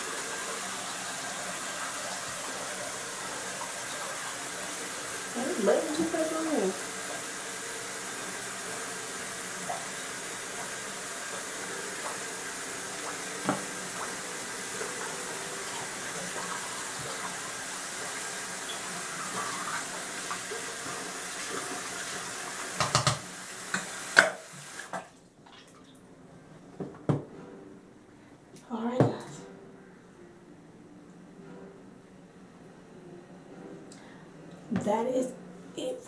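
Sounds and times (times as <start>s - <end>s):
tap running into sink: 13.0s - 17.5s, 18.6s - 25.1s, 26.8s - 27.3s.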